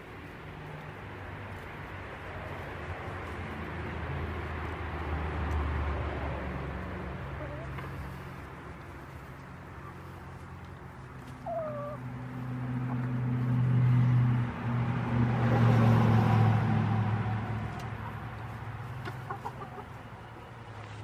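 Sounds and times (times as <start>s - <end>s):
chickens clucking: 7.2s - 8.6s, 9.4s - 13.2s, 17.5s - 21.0s.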